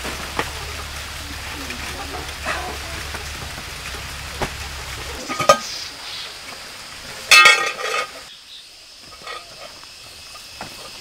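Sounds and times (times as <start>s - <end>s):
steady low hiss: 0.0s - 11.0s
metal pot clinking: 1.6s - 5.8s, 7.2s - 8.3s, 9.0s - 11.0s.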